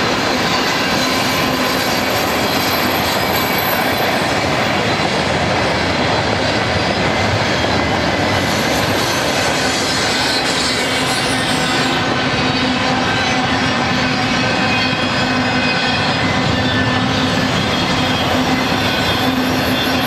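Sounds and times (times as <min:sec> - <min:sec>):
freight train wheels on rail: 0:00.0 - 0:20.0.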